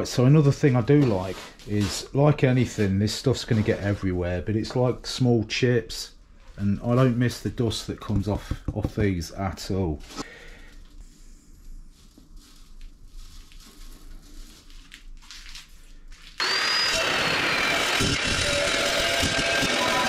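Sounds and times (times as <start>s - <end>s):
chop saw motor whine: 16.4s - 20.0s.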